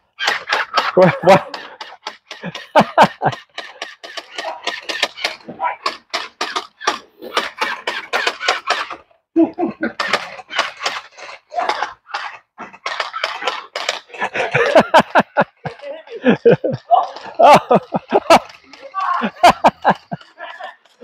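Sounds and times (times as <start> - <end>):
person laughing: 0.6 - 3.5, 9.4 - 10.1, 14.1 - 20.8.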